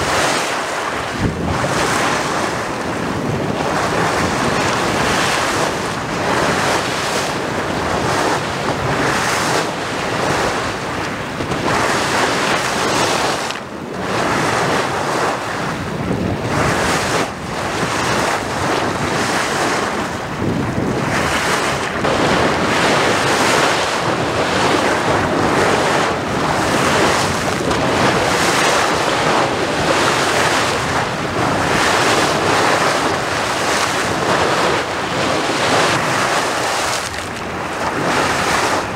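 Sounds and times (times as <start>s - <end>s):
water rushing and splashing: 0.0s - 38.9s.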